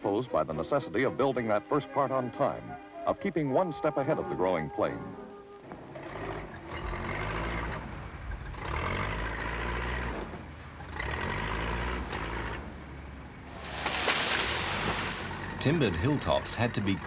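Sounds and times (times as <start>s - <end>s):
heavy diesel engine revving: 5.7s - 17.0s.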